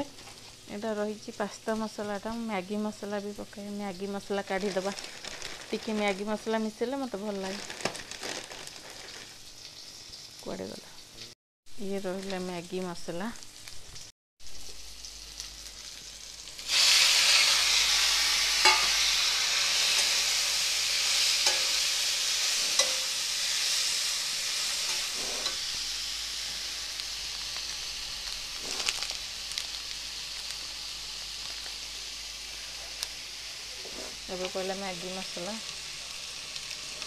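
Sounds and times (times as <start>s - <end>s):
food sizzling in a pan: 0.0s - 37.0s
metal spatula scraping a pan: 22.4s - 23.2s, 24.6s - 25.6s.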